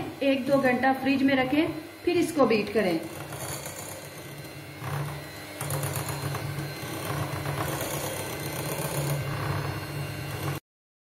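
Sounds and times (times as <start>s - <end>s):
electric hand mixer whirring: 0.0s - 10.6s.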